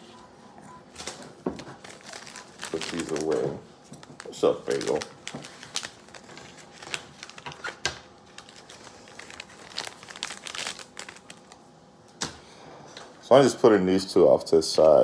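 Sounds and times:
foil wrappers crinkling: 0:01.0 - 0:11.7.

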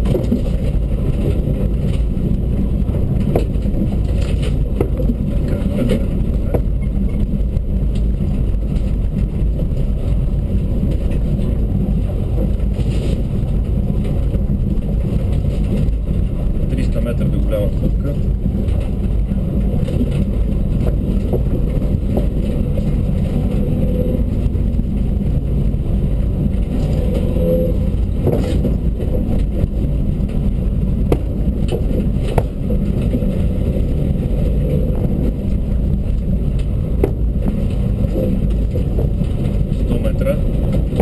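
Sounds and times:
car engine and road noise: 0:00.0 - 0:41.0
sharp knocks: 0:31.0 - 0:32.8, 0:37.0 - 0:37.4.

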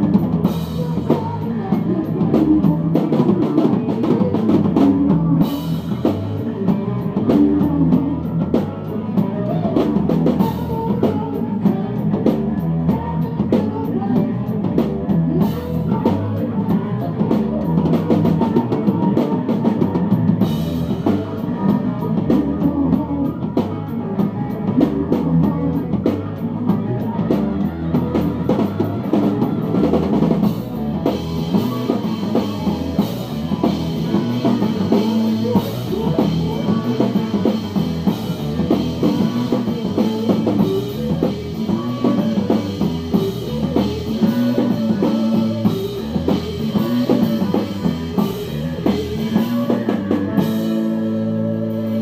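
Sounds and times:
busy drum kit: 0:00.0 - 0:52.0
live rock band playing: 0:00.0 - 0:52.0.

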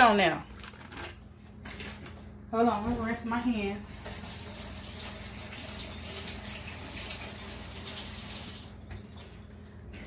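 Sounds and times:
faucet water running: 0:03.8 - 0:08.9.

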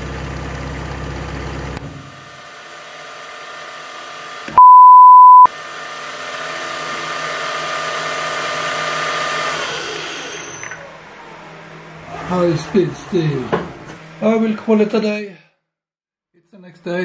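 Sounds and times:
loud beep: 0:04.6 - 0:05.5.

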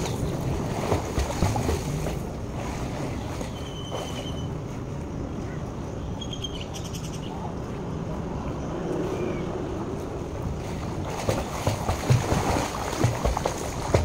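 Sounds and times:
faint water movement: 0:00.0 - 0:06.2, 0:07.2 - 0:14.0.

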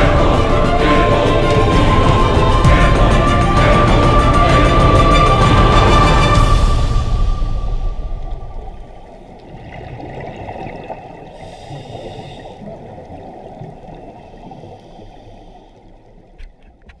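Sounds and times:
underwater regulator bubbles gurgling: 0:07.6 - 0:17.0.

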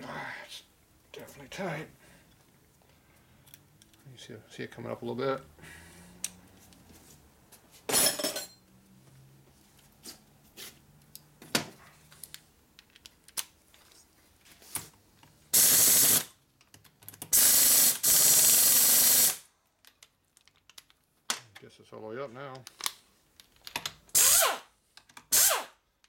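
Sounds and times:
air exhaust hissing: 0:15.5 - 0:16.3, 0:17.3 - 0:19.4
pneumatic ratchet running: 0:15.6 - 0:16.3, 0:17.3 - 0:19.4, 0:24.2 - 0:24.7, 0:25.3 - 0:25.8.

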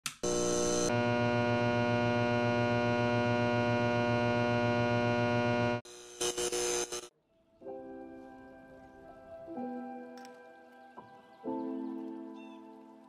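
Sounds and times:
neon sign electrical hum: 0:00.2 - 0:07.0.

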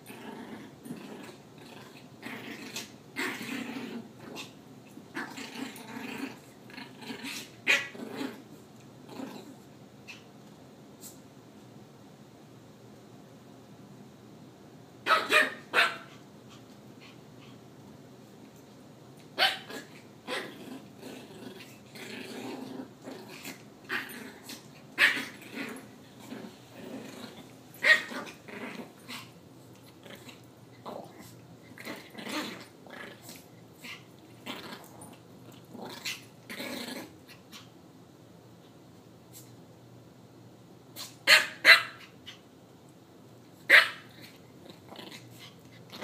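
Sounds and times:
dogs growling: 0:00.0 - 0:10.2, 0:19.7 - 0:37.7, 0:44.1 - 0:46.0.

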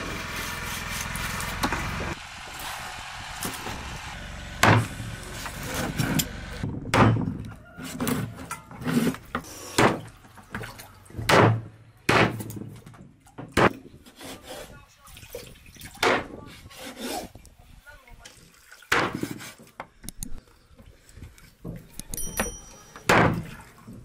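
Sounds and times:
knocks and thuds: 0:04.6 - 0:05.0, 0:06.7 - 0:07.4, 0:11.2 - 0:13.9.

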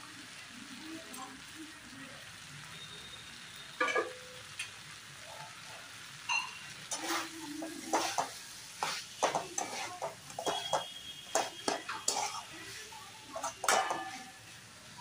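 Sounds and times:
oil sizzling: 0:00.0 - 0:15.0
metal spatula scraping a pan: 0:06.8 - 0:14.6.

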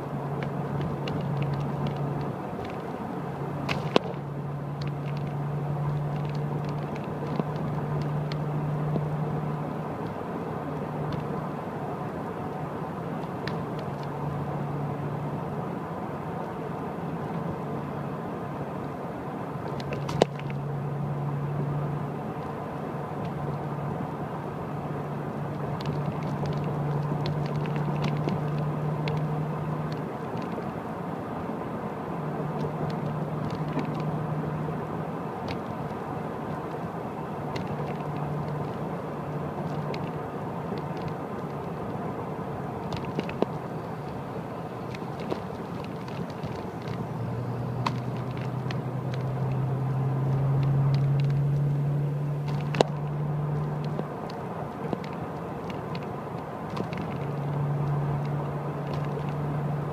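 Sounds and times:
car engine hum: 0:00.0 - 0:59.9
road noise: 0:00.0 - 0:59.9
light clicks and knocks: 0:00.3 - 0:02.9, 0:25.5 - 0:30.8, 0:42.8 - 0:44.2.

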